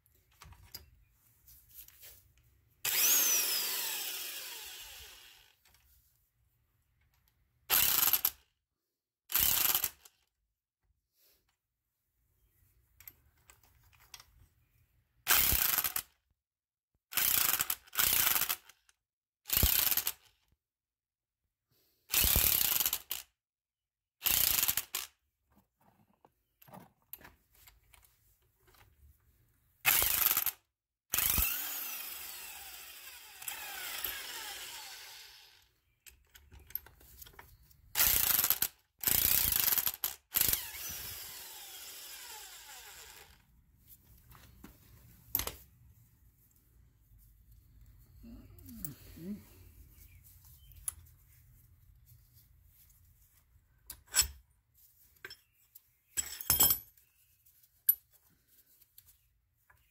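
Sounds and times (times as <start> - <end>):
power tool spinning threaded rods: 2.8 - 5.6, 7.7 - 8.4, 9.3 - 10.1, 15.3 - 16.0, 17.1 - 18.7, 19.5 - 20.3, 22.1 - 23.2, 24.2 - 25.1, 29.9 - 35.8, 38.0 - 43.5.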